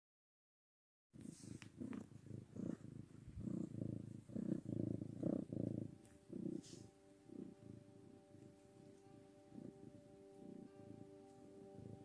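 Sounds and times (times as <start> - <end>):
cat purring: 1.2 - 12.0
soft background music: 3.4 - 12.0.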